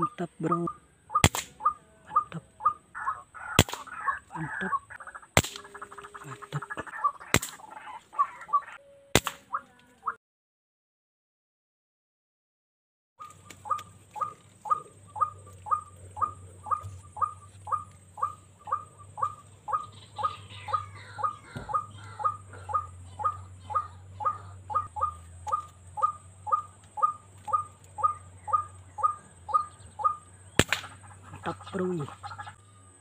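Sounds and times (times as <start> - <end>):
waterhen calling kwak: 0.0 - 10.2, 13.2 - 32.7
sharp crack: 1.2 - 1.7, 3.5 - 4.5, 5.3 - 6.6, 7.2 - 7.9, 9.2 - 9.6, 30.6 - 32.0.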